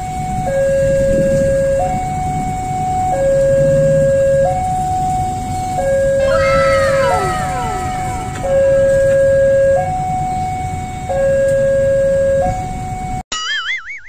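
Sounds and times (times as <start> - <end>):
two-tone hi-lo siren: 5.7 - 13.2.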